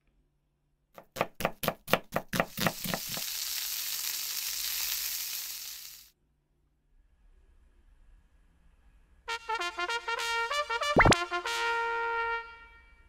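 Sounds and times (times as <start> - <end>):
steady high hiss: 2.6 - 6.1.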